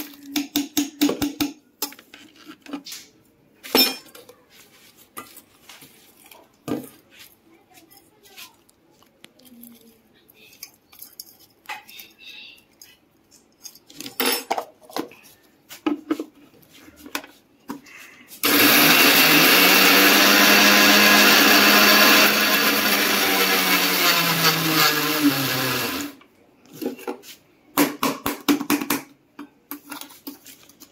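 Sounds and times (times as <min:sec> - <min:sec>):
mixer grinder motor grinding: 0:18.4 - 0:26.2.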